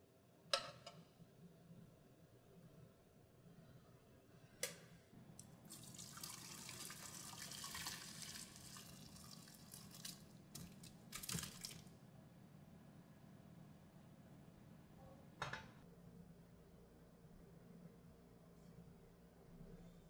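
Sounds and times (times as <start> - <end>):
water running into a strainer: 5.7 - 11.9.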